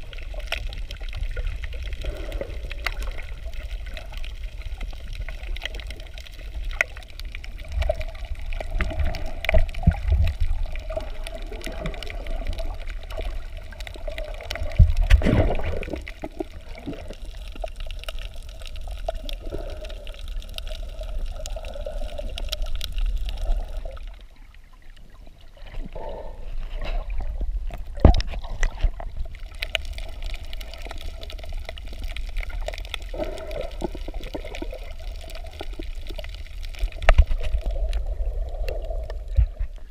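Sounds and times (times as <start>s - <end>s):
low underwater rumble: 0.0s - 39.9s
muffled underwater sloshing: 0.0s - 39.9s
sharp knocks underwater: 14.7s - 16.0s, 26.8s - 29.0s, 39.3s - 39.8s.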